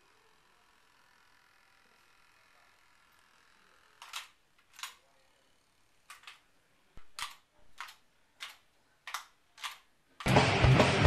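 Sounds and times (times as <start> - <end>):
toy boat motor churning water: 0.0 - 4.4.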